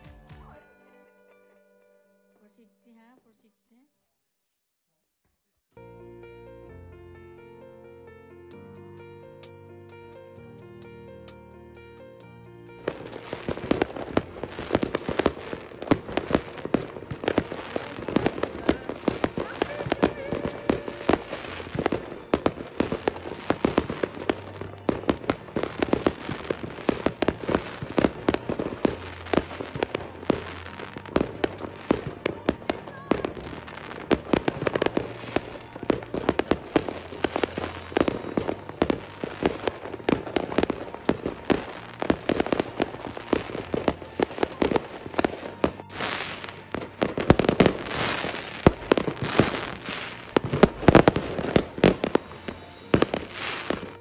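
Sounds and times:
fireworks bangs and pops: 0:12.8 - 0:54.0.

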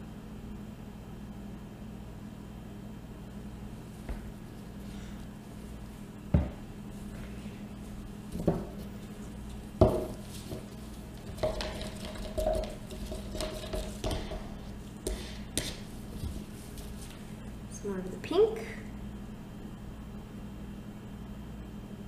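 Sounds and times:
low steady hum: 0:00.0 - 0:22.0
utensil stirring in a jug: 0:08.5 - 0:17.0
plastic jugs knocking on table: 0:09.8 - 0:10.6, 0:11.3 - 0:14.5.

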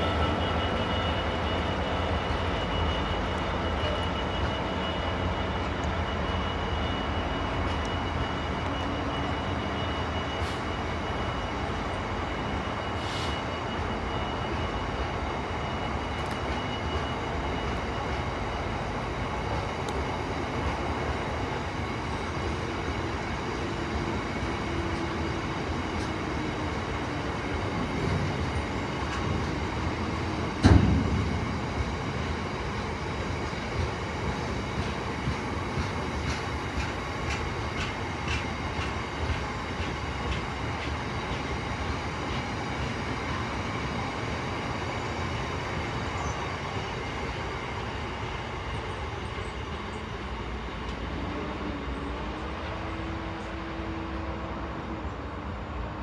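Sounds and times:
train wheels rumbling on rail: 0:00.0 - 0:56.0
faint wheel squeal: 0:12.3 - 0:14.9.

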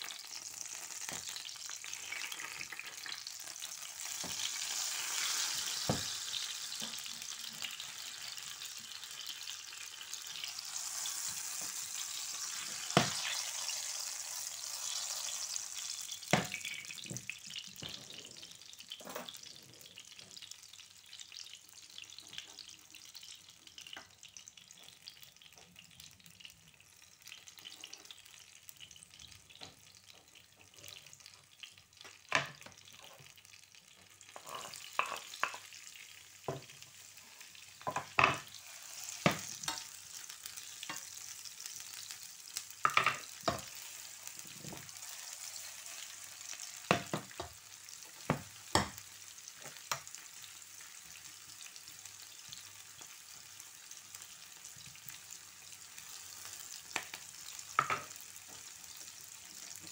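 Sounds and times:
frying sizzle in pan: 0:00.0 - 0:59.9
utensils scraping pan: 0:34.4 - 0:35.4.

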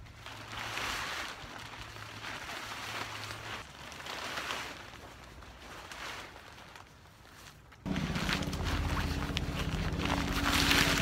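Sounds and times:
tarp rustling and crinkling: 0:00.0 - 0:11.0.

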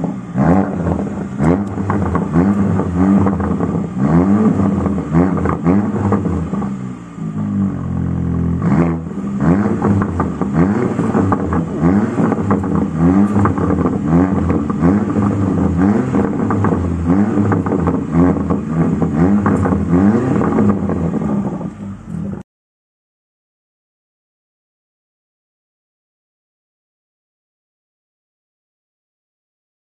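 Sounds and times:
car engine revving: 0:00.0 - 0:22.4.

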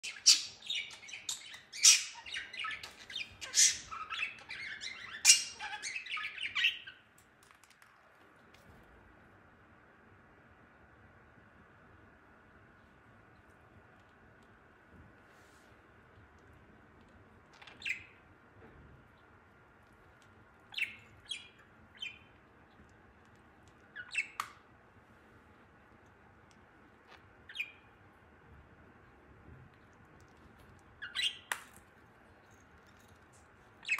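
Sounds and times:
budgerigar chirping and squawking: 0:00.0 - 0:07.0, 0:17.6 - 0:18.2, 0:20.7 - 0:22.3, 0:23.9 - 0:24.5, 0:27.5 - 0:27.9, 0:31.0 - 0:31.5.

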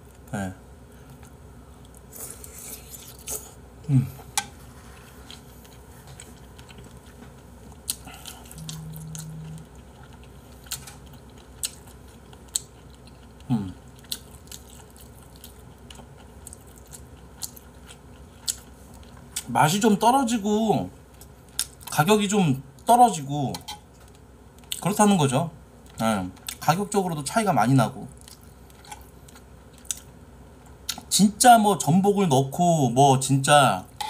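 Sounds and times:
person chewing food: 0:04.2 - 0:19.5, 0:21.0 - 0:21.9, 0:25.8 - 0:26.6, 0:28.1 - 0:31.1
brief steady hum: 0:08.5 - 0:09.8
low sounds falling in pitch: 0:08.6 - 0:09.8.

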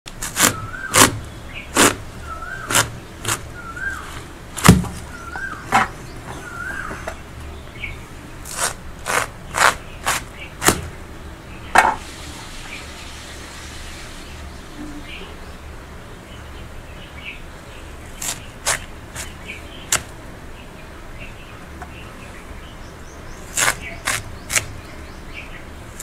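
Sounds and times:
watermelon rind cracking: 0:00.1 - 0:03.6, 0:04.5 - 0:05.1, 0:08.4 - 0:10.9, 0:18.2 - 0:20.2, 0:23.5 - 0:24.8
bird calling: 0:00.4 - 0:08.6, 0:18.1 - 0:26.0.

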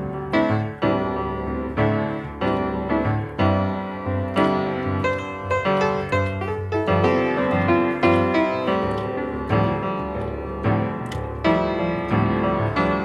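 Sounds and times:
gentle piano melody: 0:00.0 - 0:13.0.

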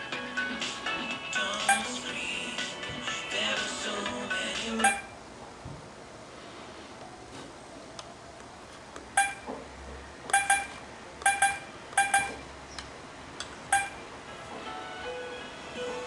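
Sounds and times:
touch-screen key beeps: 0:04.8 - 0:05.1, 0:09.2 - 0:09.5, 0:10.3 - 0:12.4, 0:13.7 - 0:14.0.

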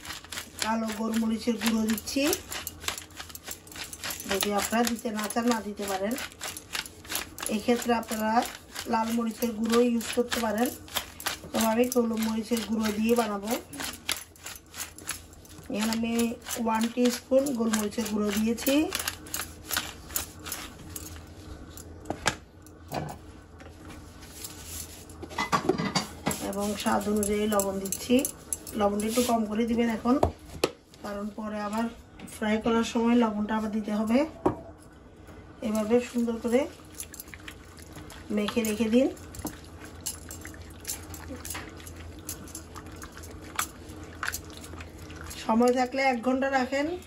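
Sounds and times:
wet squelches of mixing chicken: 0:00.0 - 0:21.2, 0:35.6 - 0:47.0
low steady hum: 0:00.0 - 0:47.0.

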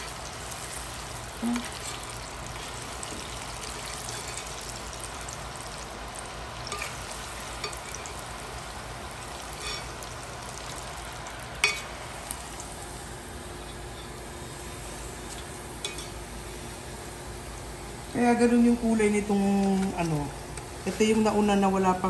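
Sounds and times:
deep-frying sizzle: 0:00.0 - 0:22.0
metal utensil clicking on pan: 0:06.7 - 0:07.0, 0:07.6 - 0:08.1, 0:15.8 - 0:16.1.

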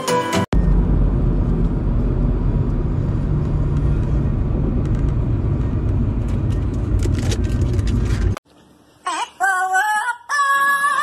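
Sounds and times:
low rumbling outdoor noise: 0:00.6 - 0:08.4.

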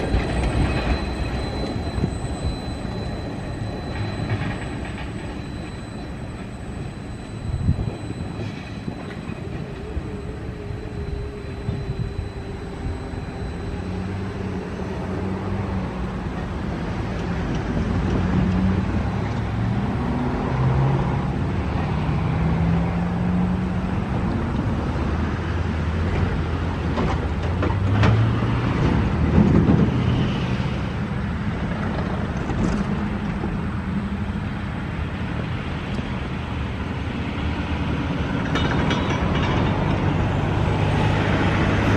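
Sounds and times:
low engine rumble: 0:00.0 - 0:20.0.

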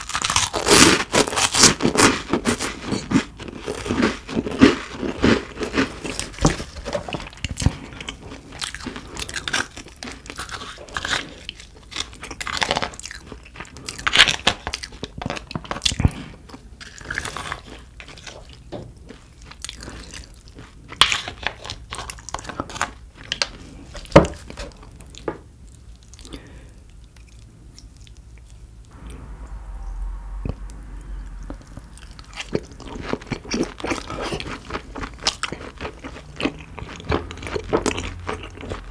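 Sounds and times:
person chewing crunchy food: 0:00.0 - 0:28.9, 0:31.4 - 0:38.9.

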